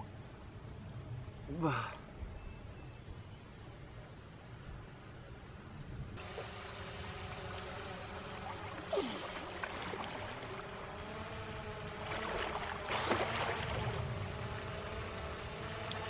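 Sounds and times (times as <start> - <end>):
drone propellers humming: 3.6 - 16.0.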